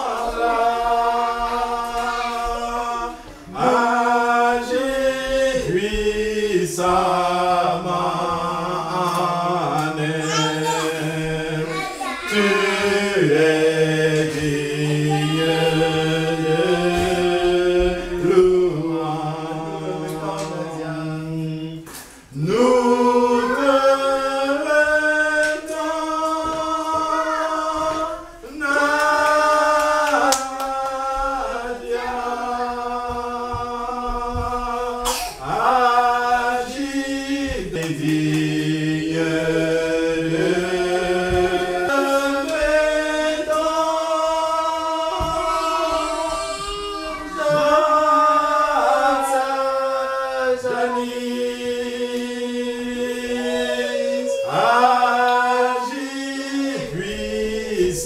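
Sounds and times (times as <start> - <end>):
group singing a cappella: 0.0 - 58.0.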